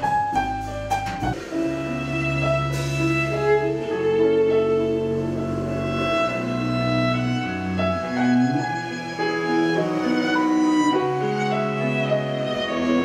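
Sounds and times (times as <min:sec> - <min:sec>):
double bass: 0:00.0 - 0:13.0
violin melody: 0:00.0 - 0:13.0.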